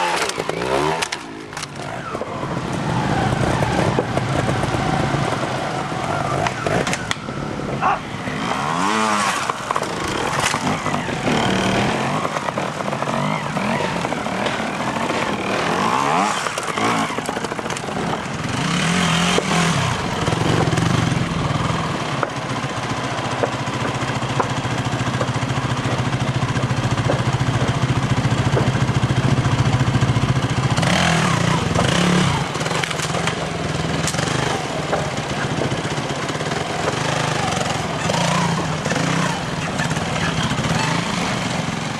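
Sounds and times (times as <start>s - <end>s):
motorcycle engines revving: 0.0s - 41.9s.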